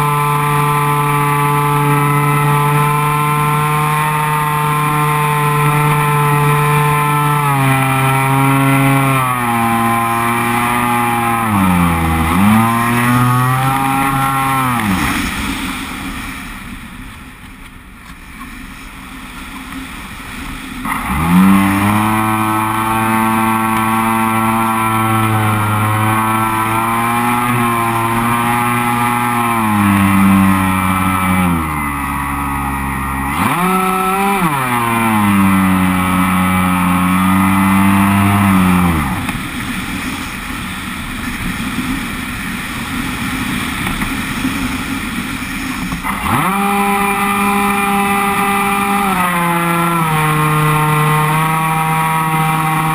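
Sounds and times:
model plane motor whining: 0.0s - 15.6s, 20.8s - 42.0s, 42.9s - 52.9s
rush of air: 14.9s - 17.2s.

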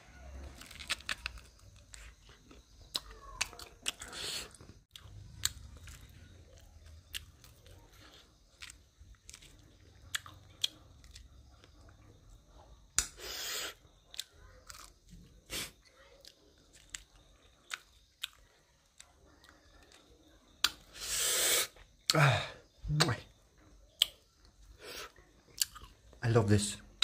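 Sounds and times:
chewing and biting corn: 0.4s - 12.2s, 14.1s - 21.0s, 24.9s - 26.1s
small crunchy clicks: 0.5s - 4.1s.

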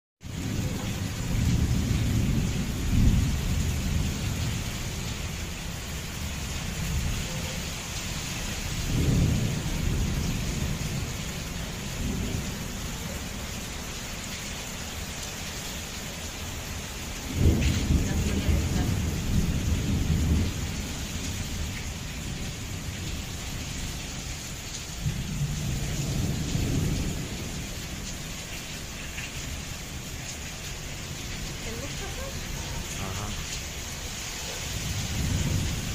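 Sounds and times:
heavy rain hissing: 0.2s - 35.9s
thunder rolling: 0.3s - 5.5s, 8.7s - 13.1s, 17.2s - 24.4s, 25.0s - 28.1s, 34.8s - 35.9s.

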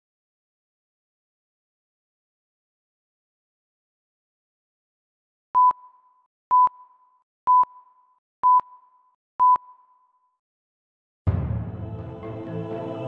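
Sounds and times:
short electronic beeps: 5.6s - 10.0s.

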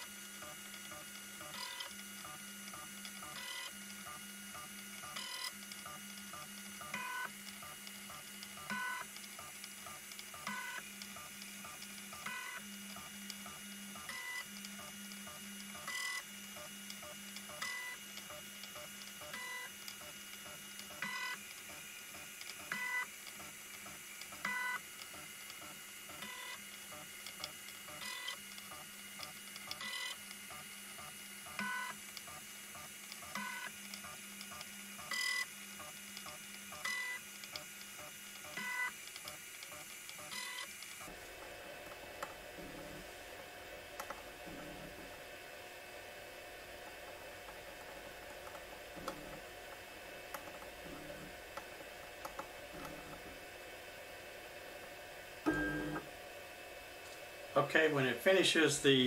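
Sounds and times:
faint steady hum: 40.3s - 59.0s
stepper motors whirring: 45.9s - 53.6s.

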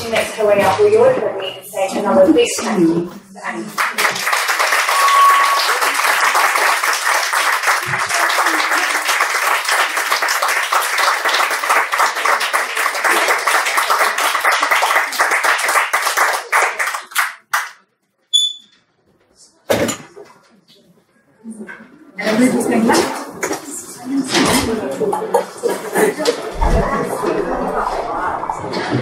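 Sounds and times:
audience applause: 3.7s - 17.8s
high beep: 4.9s - 6.0s.

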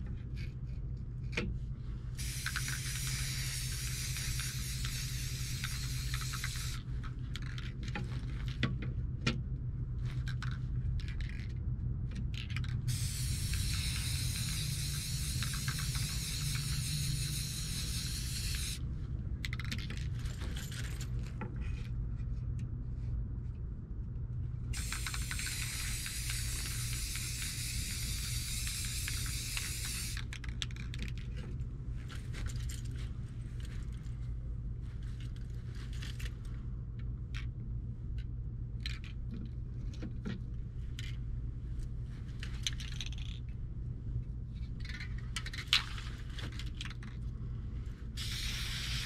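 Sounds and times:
steady low hum: 0.0s - 49.0s
spray paint can hissing: 2.2s - 6.9s, 12.9s - 18.8s, 24.8s - 30.3s, 48.2s - 49.0s.

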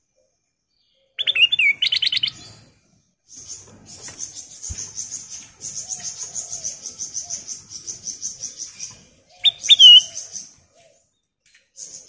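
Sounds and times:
bird whistled notes: 9.5s - 10.2s.

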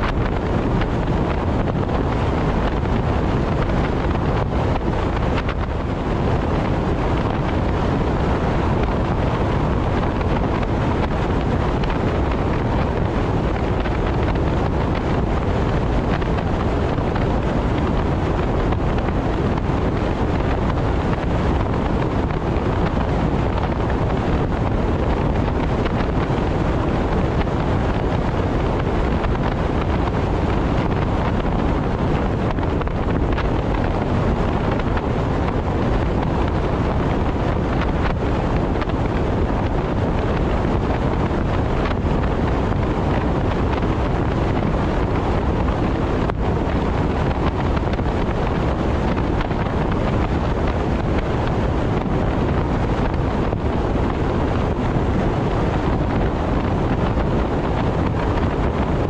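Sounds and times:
wind and road noise in car: 0.0s - 59.0s.

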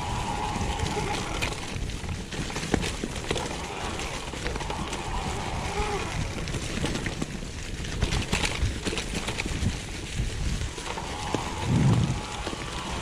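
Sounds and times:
bike knocking and rattling: 0.0s - 13.0s
bike tyres crunching through leaves: 0.0s - 13.0s
low rumble: 11.4s - 13.0s.

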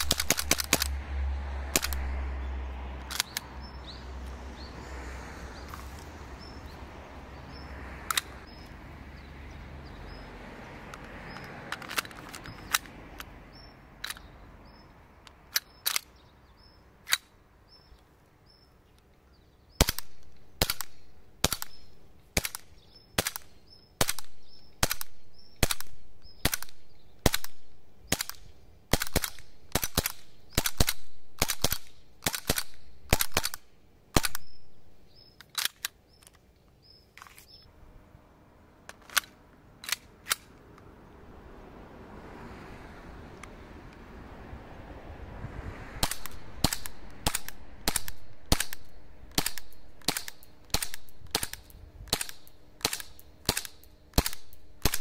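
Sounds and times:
airsoft pistol shots: 0.0s - 1.0s, 19.8s - 33.6s, 46.0s - 55.0s
pistol handling clicks: 0.0s - 1.0s, 1.7s - 2.1s, 3.0s - 3.5s, 8.1s - 8.5s, 10.9s - 13.3s, 14.0s - 14.3s, 15.2s - 16.2s, 17.0s - 17.3s, 19.8s - 36.5s, 38.9s - 40.9s, 46.0s - 55.0s.

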